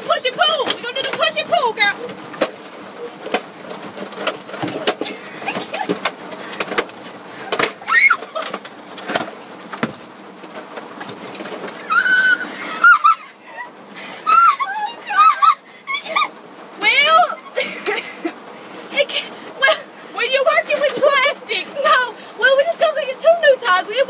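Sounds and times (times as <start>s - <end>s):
short high-pitched cries: 11.8s - 13.2s.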